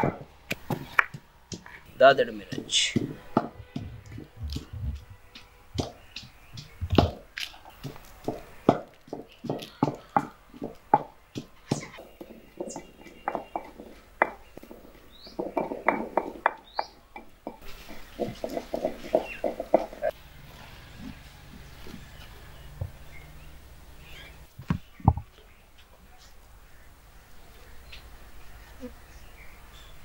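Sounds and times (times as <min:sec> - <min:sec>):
chickens clucking: 0:01.5 - 0:23.0.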